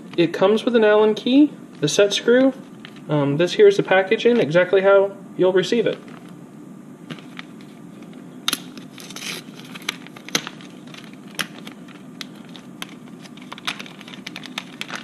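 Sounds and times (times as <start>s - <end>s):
plastic bag crinkling: 7.1s - 15.0s.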